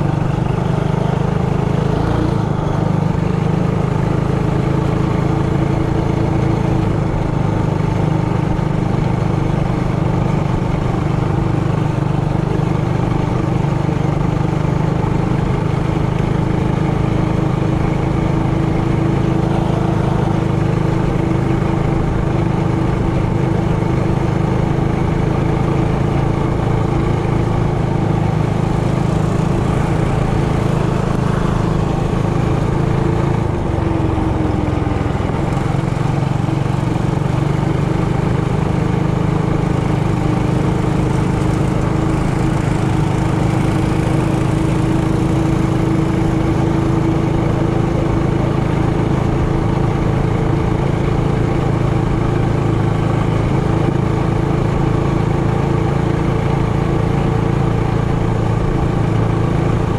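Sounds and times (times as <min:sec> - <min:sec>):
mini bike engine running: 0:00.0 - 0:59.9.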